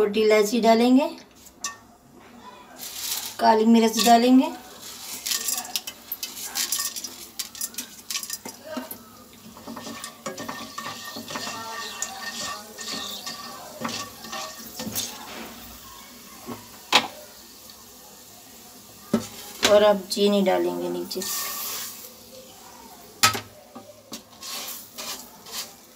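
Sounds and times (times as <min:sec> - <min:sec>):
spatula scraping frying pan: 0:02.8 - 0:15.8, 0:20.9 - 0:22.2, 0:23.2 - 0:25.9.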